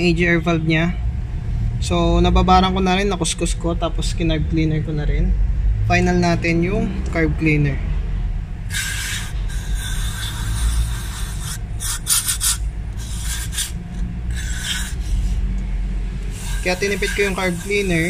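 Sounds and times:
steady low hum: 0.0s - 18.0s
aerosol spray hissing: 8.7s - 15.5s, 16.2s - 18.0s.

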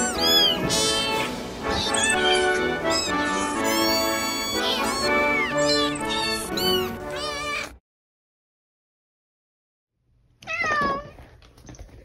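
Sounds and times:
anthem music: 0.0s - 7.2s
cat meowing: 0.0s - 7.8s, 10.4s - 11.2s.

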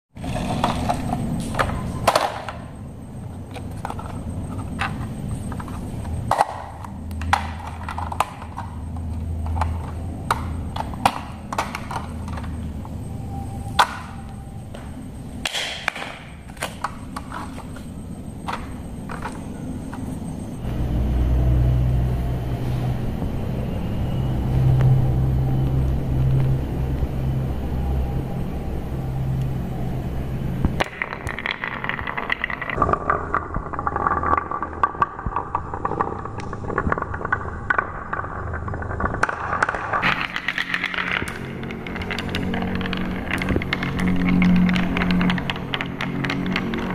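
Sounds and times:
marbles clacking on wooden blocks: 0.2s - 20.7s, 30.6s - 46.9s.

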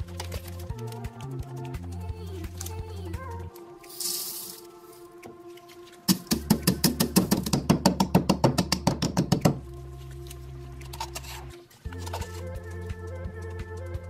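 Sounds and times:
background music: 0.0s - 14.0s
peppercorns rattling into mortar: 3.9s - 4.7s
wooden pestle pounding: 6.1s - 9.6s.

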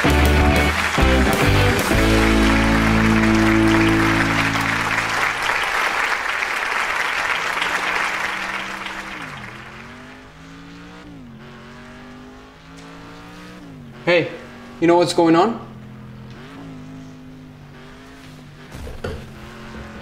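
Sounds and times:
music with held chords: 0.0s - 5.5s
video game car engine revving: 0.0s - 20.0s.

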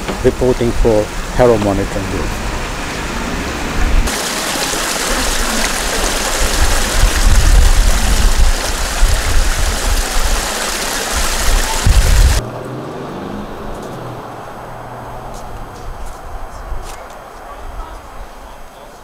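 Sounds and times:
water rushing into storm drain: 2.3s - 12.4s.

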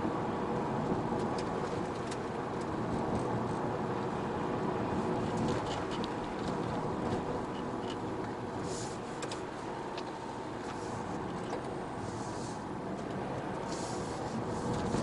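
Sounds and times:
car tyre and engine noise: 0.0s - 15.0s
windscreen wiper sweeping: 10.6s - 15.0s.

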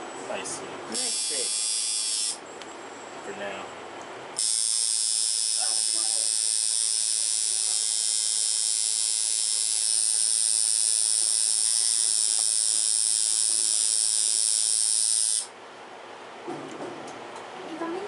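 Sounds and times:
tattoo machine buzzing: 0.9s - 2.4s, 4.4s - 15.5s.

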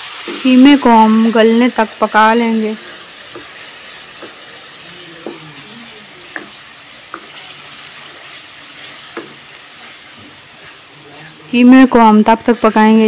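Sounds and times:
meat sizzling in hot oil: 0.0s - 13.0s
wooden spoon knocking pan: 3.3s - 3.5s, 4.1s - 4.5s, 6.3s - 7.5s, 9.1s - 9.5s.

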